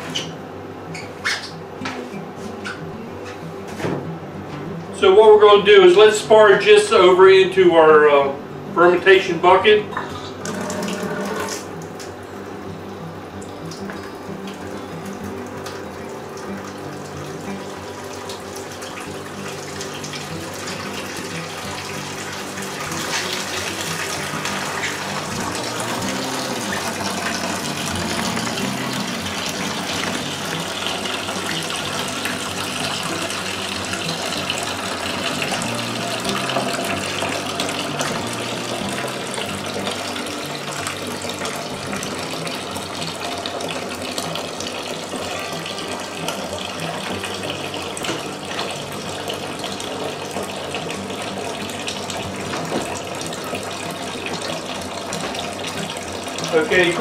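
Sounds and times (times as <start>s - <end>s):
liquid pouring into plastic bucket: 13.5s - 57.0s.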